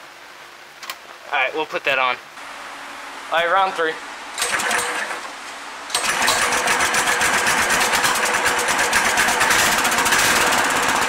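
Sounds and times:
engine pull-start: 4.4 - 5.3, 5.9 - 11.0
small engine running steadily: 6.0 - 11.0.

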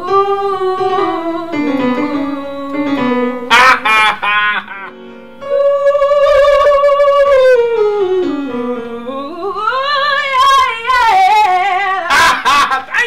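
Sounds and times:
woman singing a long note: 5.4 - 12.1.

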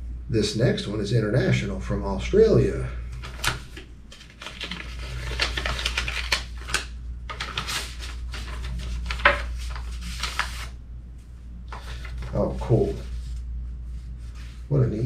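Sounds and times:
steady low hum: 0.0 - 15.0
paper and envelope rustling: 3.1 - 10.8, 11.7 - 14.7.

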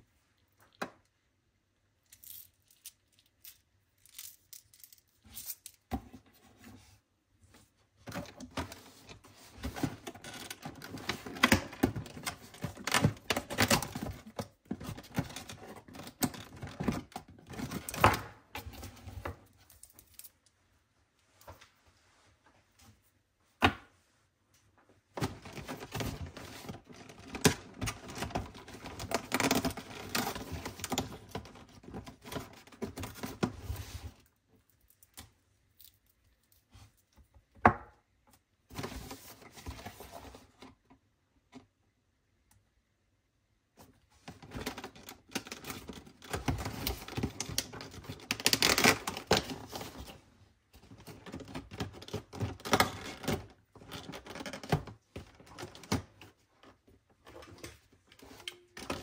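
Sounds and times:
cardboard clicking and crackling: 25.2 - 33.8, 44.4 - 50.2.

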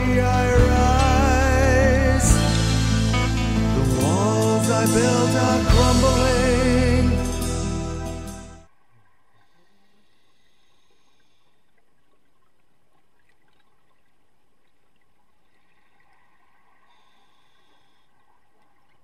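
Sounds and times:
faint underwater hiss: 9.3 - 12.0, 15.4 - 18.6.

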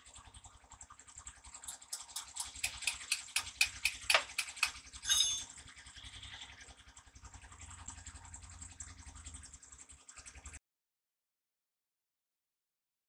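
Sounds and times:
metal tapping: 1.6 - 5.5
metallic ring: 3.8 - 5.6.

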